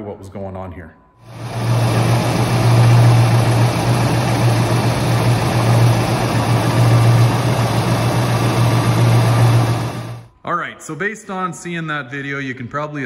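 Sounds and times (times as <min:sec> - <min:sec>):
car engine idling: 0:01.3 - 0:10.3.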